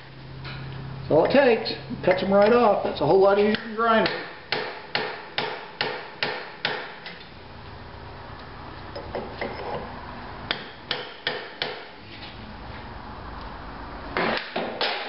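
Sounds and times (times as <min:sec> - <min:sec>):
hammer striking chisel: 0:03.5 - 0:07.0, 0:10.5 - 0:11.9.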